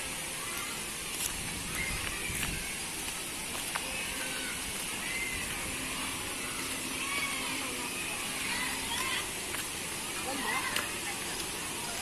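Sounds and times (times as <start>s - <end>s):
steady outdoor hiss: 0.0s - 12.0s.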